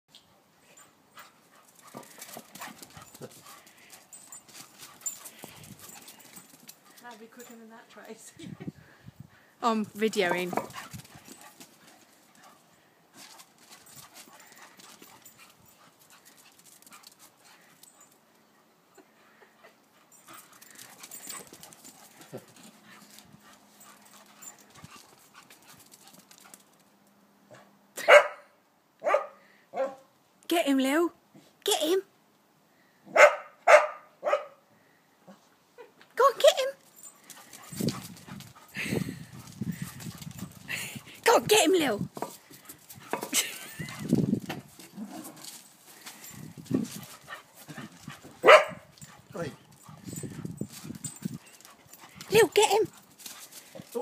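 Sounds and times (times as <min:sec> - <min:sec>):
dogs breathing: 0:00.8 - 0:07.5, 0:10.6 - 0:18.3, 0:19.1 - 0:26.6, 0:36.8 - 0:41.3, 0:42.2 - 0:54.0
small dogs scuffling: 0:01.2 - 0:07.7, 0:10.2 - 0:18.2, 0:20.2 - 0:26.9, 0:36.8 - 0:54.0
dog barking: 0:28.0 - 0:28.4, 0:29.0 - 0:30.1, 0:33.1 - 0:34.6, 0:48.4 - 0:48.9.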